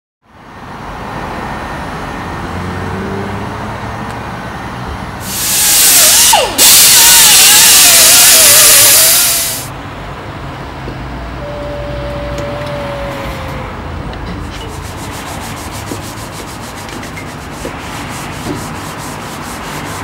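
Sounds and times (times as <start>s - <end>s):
air sander hissing and whining: 5.2s - 9.7s.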